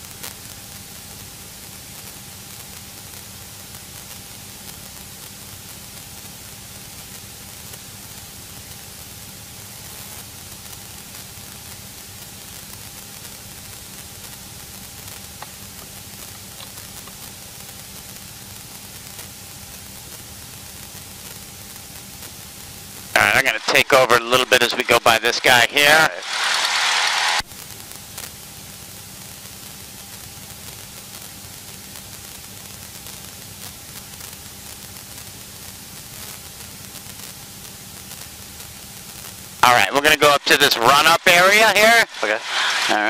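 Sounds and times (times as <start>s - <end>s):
steady hiss: 0.1s - 43.0s.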